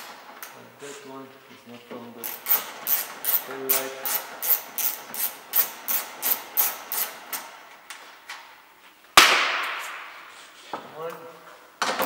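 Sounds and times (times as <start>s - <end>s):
socket ratchet rasping: 2.2s - 7.5s.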